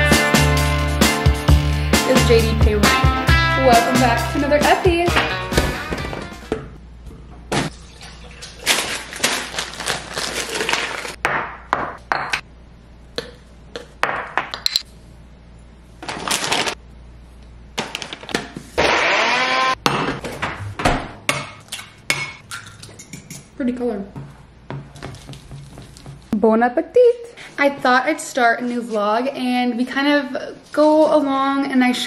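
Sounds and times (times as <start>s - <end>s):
blender whirring: 18.8s - 19.8s.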